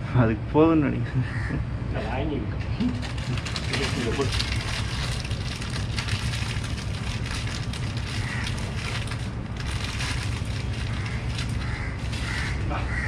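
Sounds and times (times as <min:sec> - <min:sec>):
plastic bag crinkling: 0:02.8 - 0:12.7.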